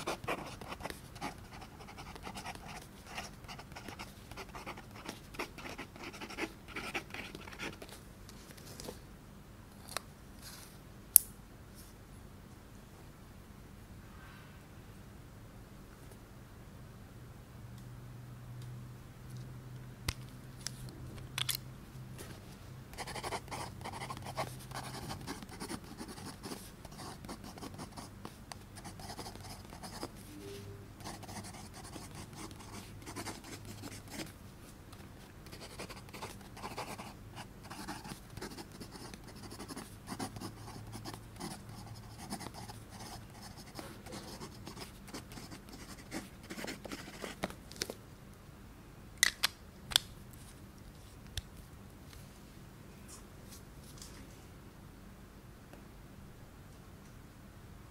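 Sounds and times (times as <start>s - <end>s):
pen nib scratching on paper: 0.0s - 7.9s, 23.0s - 30.1s, 31.0s - 34.3s, 35.5s - 47.4s.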